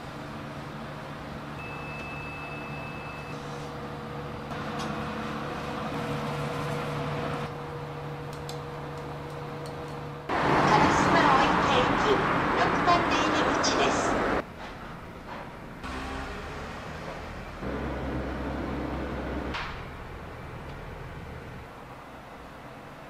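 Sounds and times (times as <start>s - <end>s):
low mechanical hum: 0.0s - 12.1s
street noise: 0.0s - 23.0s.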